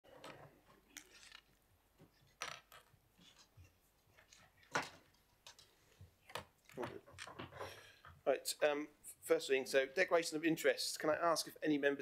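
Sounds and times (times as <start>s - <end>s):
knocks and clatters: 6.3s - 8.2s.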